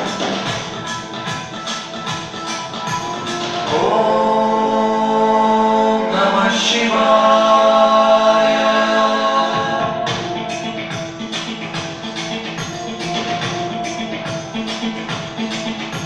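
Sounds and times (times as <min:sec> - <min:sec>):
music percussion: 0:00.0 - 0:16.0
person singing long notes: 0:03.6 - 0:10.8.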